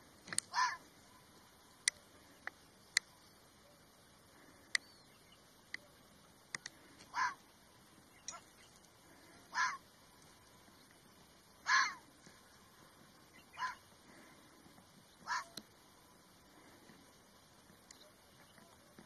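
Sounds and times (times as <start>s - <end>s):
fox barking: 0.5s - 1.3s, 7.1s - 7.4s, 9.2s - 9.8s, 11.6s - 12.1s, 13.5s - 14.2s, 15.2s - 15.6s
sharp clicks: 1.8s - 3.1s, 6.5s - 7.1s.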